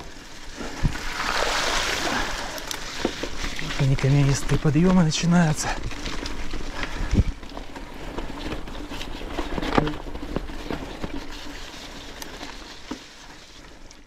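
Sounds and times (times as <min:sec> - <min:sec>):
bike tyres crunching over stones: 0:00.0 - 0:14.0
wind rumble on microphone: 0:06.9 - 0:07.4.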